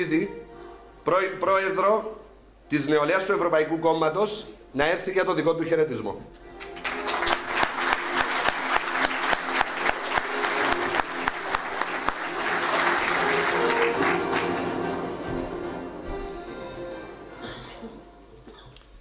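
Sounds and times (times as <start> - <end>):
background music: 0.0 - 18.6
audience applauding: 6.6 - 16.2.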